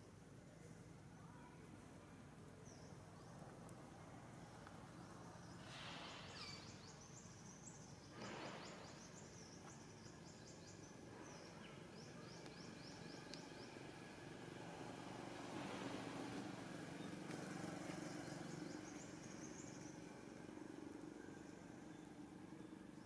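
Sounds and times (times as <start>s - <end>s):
small bird chirping: 4.7s - 14.1s, 16.9s - 20.4s.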